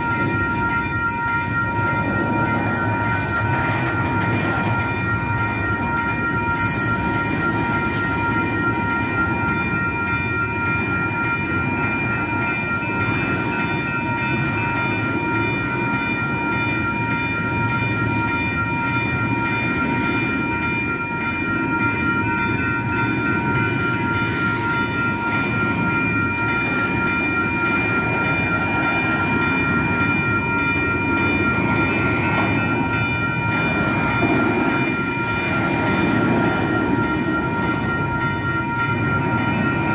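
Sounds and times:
high steady tones: 0:00.0 - 0:39.9
train wheels rumbling on rail: 0:00.0 - 0:39.9.

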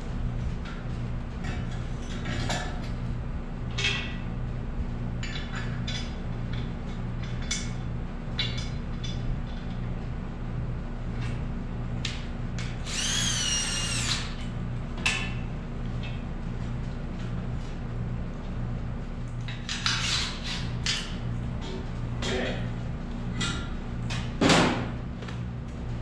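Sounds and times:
steady low hum: 0:00.0 - 0:26.0
power drill whine: 0:12.8 - 0:14.4.

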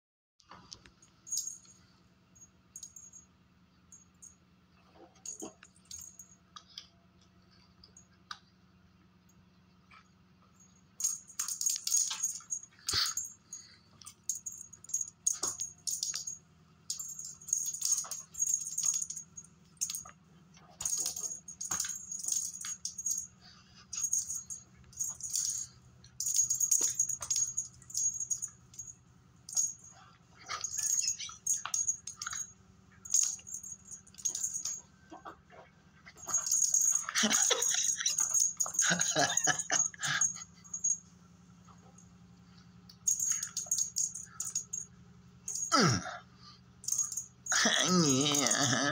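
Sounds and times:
cat toy rattling and jingling: 0:01.2 - 0:01.8, 0:10.9 - 0:34.9, 0:35.9 - 0:41.1, 0:42.9 - 0:45.8, 0:46.8 - 0:48.9.

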